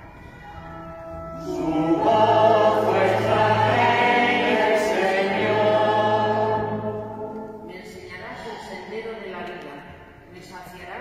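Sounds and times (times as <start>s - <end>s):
choir singing psalm: 1.3s - 7.7s.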